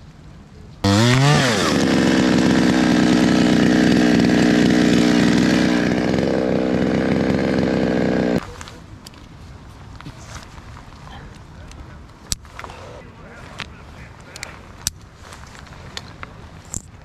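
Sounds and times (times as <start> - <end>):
chainsaw revving: 0.8 - 8.4.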